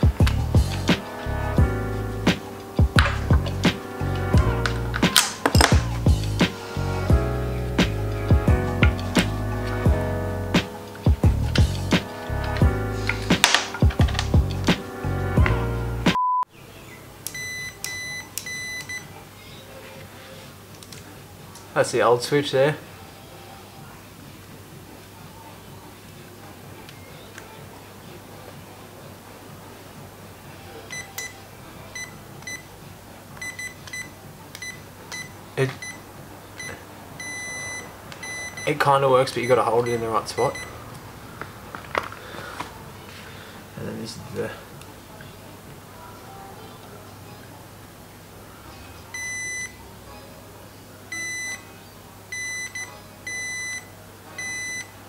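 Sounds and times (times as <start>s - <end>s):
multimeter beeping: 17.3s - 19.1s, 36.6s - 38.7s, 49.2s - 49.7s, 51.1s - 51.6s, 52.3s - 54.9s.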